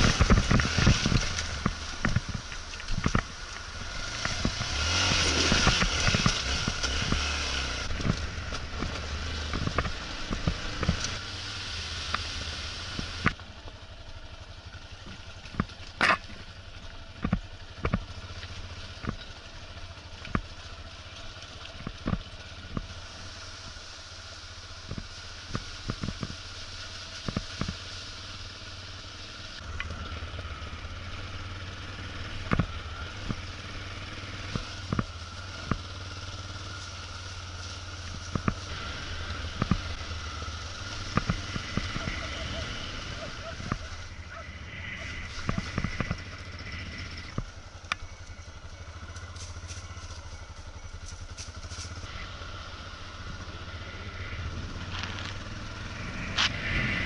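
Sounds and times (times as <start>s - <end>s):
knocks and clatter over bumps: 0.0s - 11.2s, 14.8s - 23.0s, 32.0s - 44.4s
motorcycle engine at low revs: 0.0s - 57.0s.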